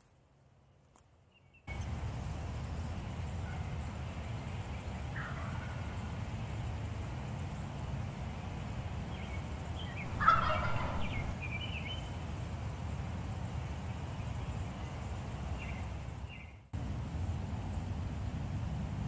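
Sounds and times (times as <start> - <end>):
turkey gobbling: 10.0 - 11.6.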